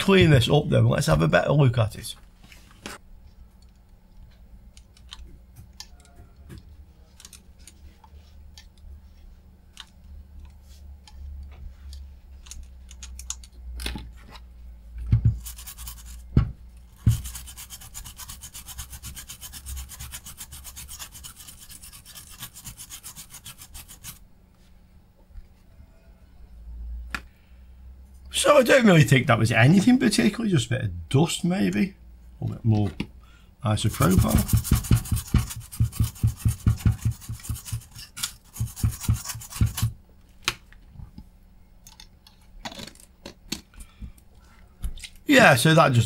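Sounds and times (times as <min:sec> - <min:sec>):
scratching on circuit board: 0:15.3 - 0:16.2, 0:16.9 - 0:24.2, 0:33.7 - 0:40.0.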